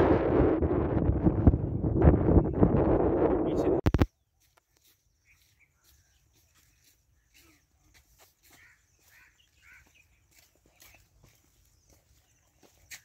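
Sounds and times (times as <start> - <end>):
faint chirp-like animal calls: 4.8 - 13.0.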